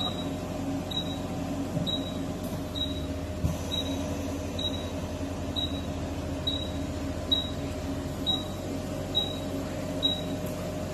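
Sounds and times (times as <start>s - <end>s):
patient monitor beeping: 0.0s - 1.3s, 1.9s - 3.1s, 3.7s - 5.0s, 5.6s - 7.6s, 8.2s - 10.4s
low equipment hum: 0.0s - 10.9s.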